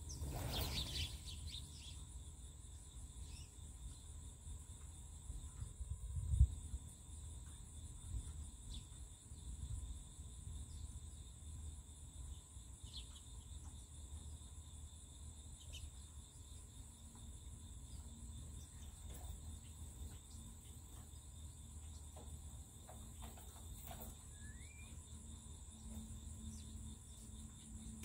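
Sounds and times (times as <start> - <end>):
bird chirps: 0.0 - 2.1, 23.1 - 25.2
crickets chirping drone: 0.0 - 28.0.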